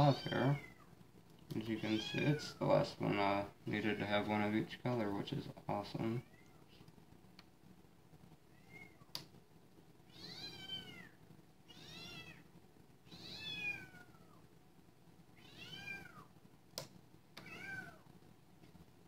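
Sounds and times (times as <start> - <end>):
kitten meowing: 17.4 - 18.0.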